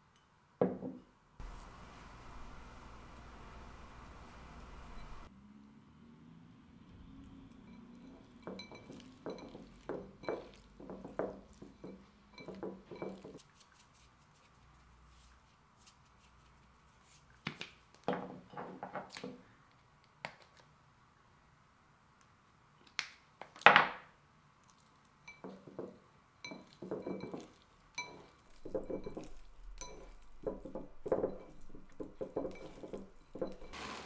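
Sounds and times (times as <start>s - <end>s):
hands mixing meat in stone bowl: 8.0s - 17.7s, 25.3s - 34.0s
containers clicking and tapping: 25.3s - 33.8s.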